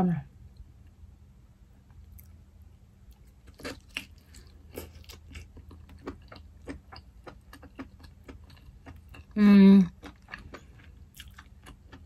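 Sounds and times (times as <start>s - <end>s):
chewing and biting food: 3.0s - 12.0s.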